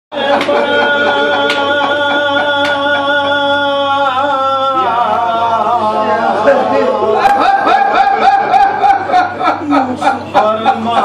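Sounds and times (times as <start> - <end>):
man singing devotional poetry: 0.2 - 7.2.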